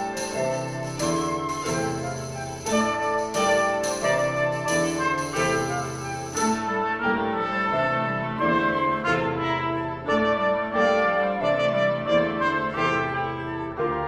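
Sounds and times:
chamber ensemble playing chords: 0:00.0 - 0:07.4
trumpet: 0:00.0 - 0:14.0.

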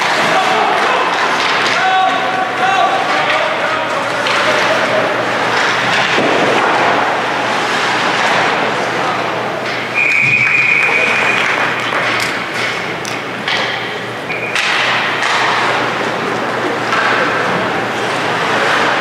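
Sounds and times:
crowd voices: 0:00.0 - 0:19.0
rink noise with sharp knocks: 0:09.7 - 0:15.8
referee's whistle: 0:10.0 - 0:11.6, 0:14.3 - 0:14.6.

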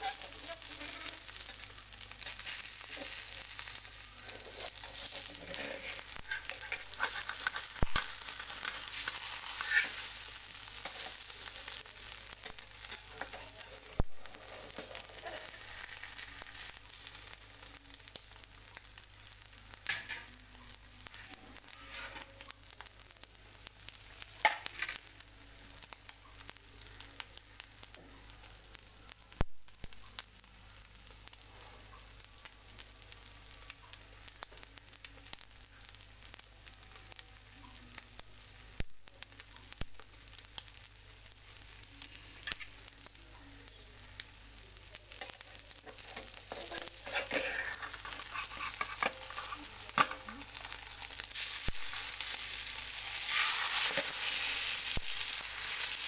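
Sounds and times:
omelette sizzling in a frying pan: 0:00.0 - 0:56.0
metal spatula scraping a pan: 0:02.2 - 0:11.8, 0:21.7 - 0:22.3, 0:45.2 - 0:56.0.

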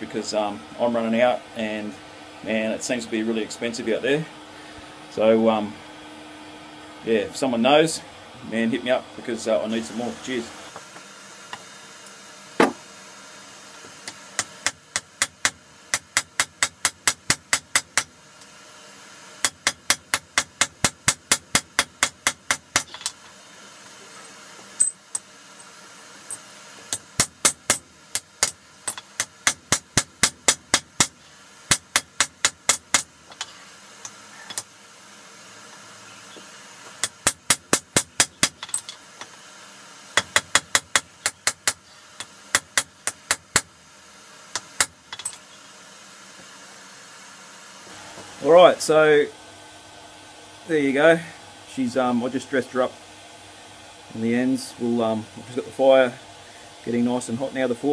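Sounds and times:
hammer striking hot steel: 0:14.3 - 0:18.2, 0:19.4 - 0:23.1, 0:26.9 - 0:34.7, 0:37.0 - 0:39.0, 0:40.2 - 0:43.7.

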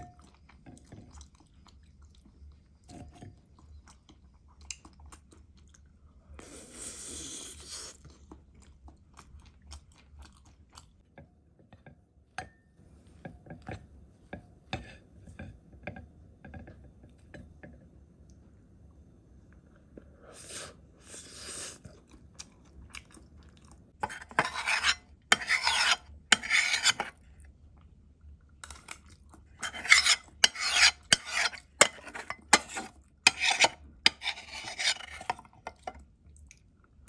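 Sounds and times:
cutlery scraping a dish: 0:24.0 - 0:27.2, 0:29.6 - 0:35.9.

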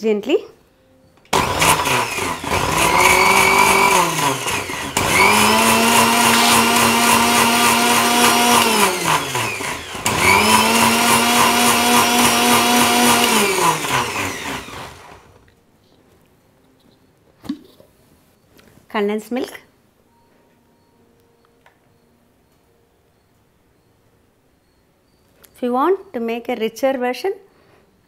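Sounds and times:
mixer grinder motor whine: 0:01.3 - 0:15.4.

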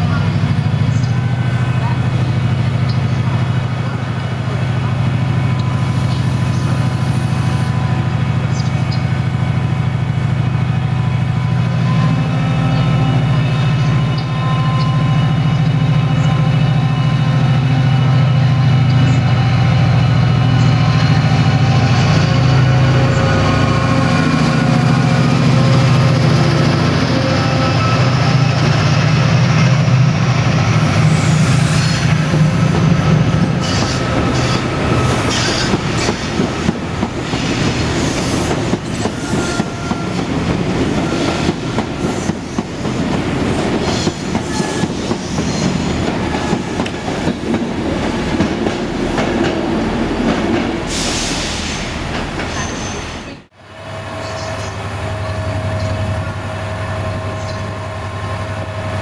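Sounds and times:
train wheels clicking and rattling: 0:32.0 - 0:50.8.

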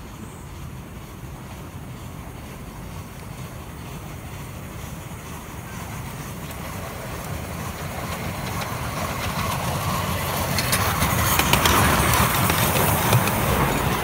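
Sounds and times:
miniature steam train rumble: 0:00.0 - 0:14.0
wheels clattering on track: 0:00.0 - 0:14.0.

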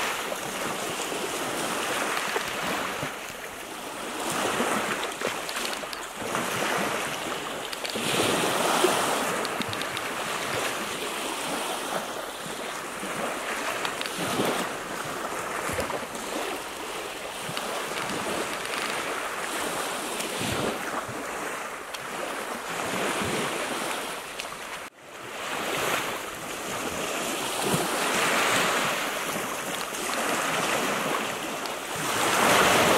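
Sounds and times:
wind on microphone: 0:00.0 - 0:24.2
waves lapping on stony shore: 0:00.0 - 0:32.9.

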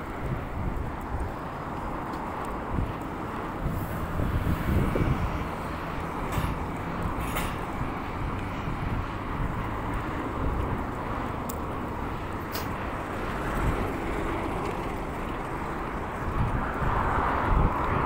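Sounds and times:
vehicle rumble: 0:00.0 - 0:18.0
faint clicks: 0:00.9 - 0:03.1, 0:11.4 - 0:11.7.

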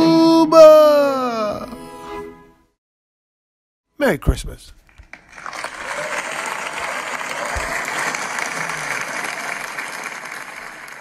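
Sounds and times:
audience applause: 0:05.1 - 0:11.0.

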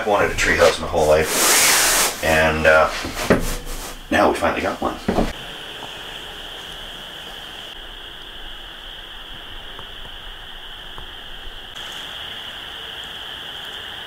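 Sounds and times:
distant frog chorus trilling: 0:04.9 - 0:14.0.

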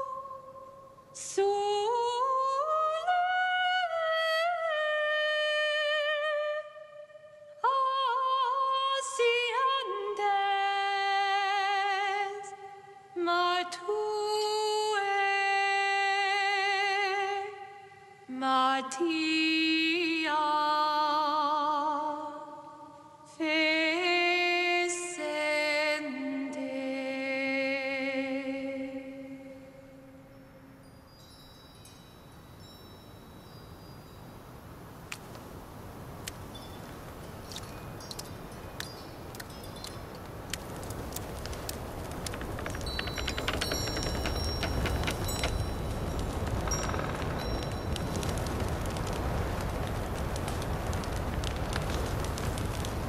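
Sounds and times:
woman singing unaccompanied: 0:00.0 - 0:30.2
faint high ringing tones: 0:29.8 - 0:34.8, 0:36.4 - 0:49.4.

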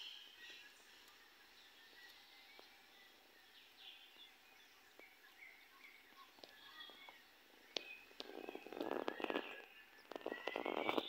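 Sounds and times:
bird chirps: 0:00.0 - 0:11.0
faint clicks: 0:01.0 - 0:01.2, 0:01.9 - 0:02.8, 0:06.1 - 0:11.0.

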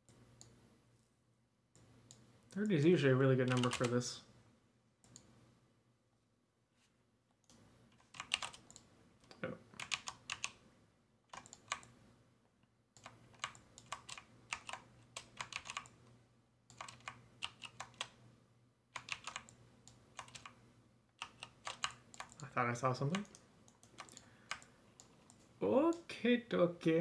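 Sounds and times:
keyboard keys clicking: 0:03.5 - 0:03.9, 0:08.0 - 0:08.8, 0:09.8 - 0:10.6, 0:13.0 - 0:15.9, 0:16.7 - 0:18.1, 0:19.0 - 0:20.6.

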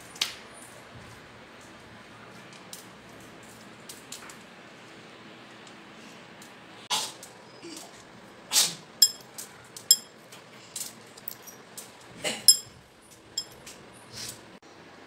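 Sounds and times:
short ringing clinks: 0:09.0 - 0:09.3, 0:09.9 - 0:10.2, 0:12.5 - 0:12.7, 0:13.4 - 0:13.6.

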